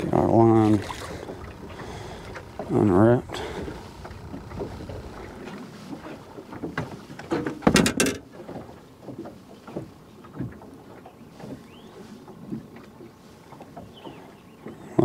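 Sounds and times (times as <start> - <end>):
fishing tackle clicking and knocking: 7.2 - 8.4.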